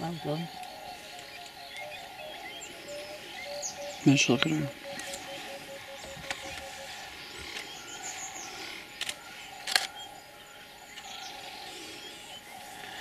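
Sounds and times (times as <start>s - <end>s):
outdoor background noise: 0.0s - 13.0s
camera shutter clicks: 9.0s - 10.0s.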